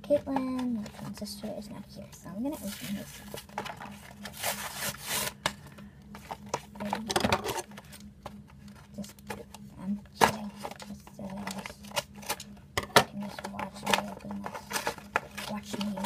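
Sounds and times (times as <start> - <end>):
plastic crackles: 13.2 - 16.0.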